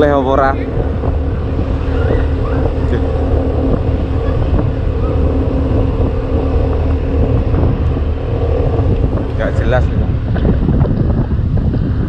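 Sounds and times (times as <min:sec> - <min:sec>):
vehicle engine running: 0:00.0 - 0:12.0
wind rumble on microphone: 0:00.0 - 0:12.0.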